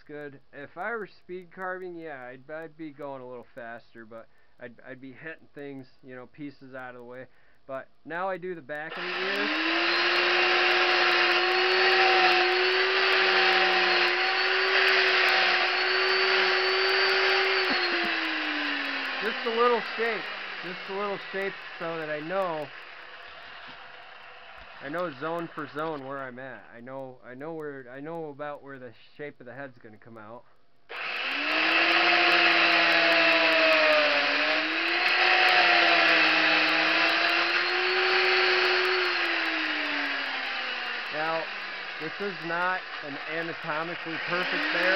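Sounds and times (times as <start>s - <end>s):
chainsaw carving wood: 8.8s - 26.1s, 30.9s - 44.9s.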